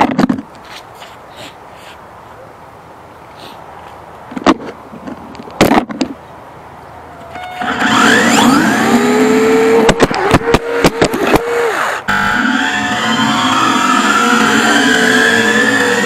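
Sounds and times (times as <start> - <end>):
toy car electric motor whine: 7.4 - 16.0.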